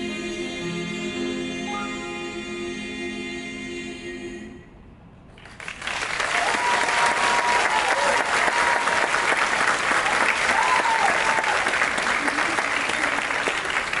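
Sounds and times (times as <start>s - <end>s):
choir singing sustained chord: 0.0s - 4.8s
audience applause: 5.4s - 14.0s.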